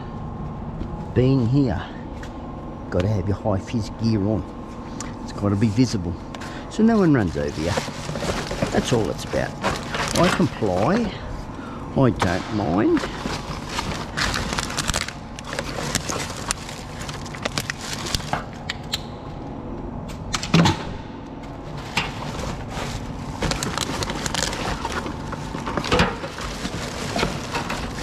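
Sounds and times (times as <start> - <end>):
rubbish rustling and clattering: 6.9 - 11.3, 12.1 - 18.5, 21.5 - 28.0.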